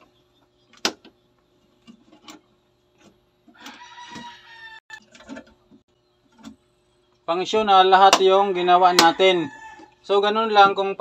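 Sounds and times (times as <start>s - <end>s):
rooster crowing: 3.5s - 5.0s, 8.5s - 10.2s.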